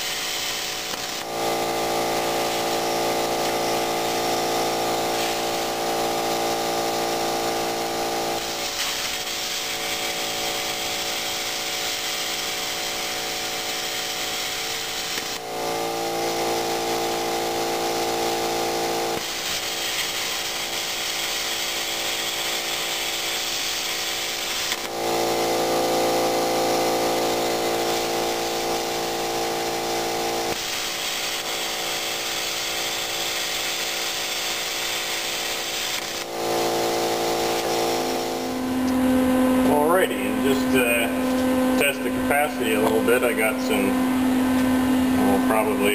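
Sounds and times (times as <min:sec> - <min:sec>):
plasma cutter arc hissing: 0:00.0 - 0:44.0, 0:44.9 - 0:45.9.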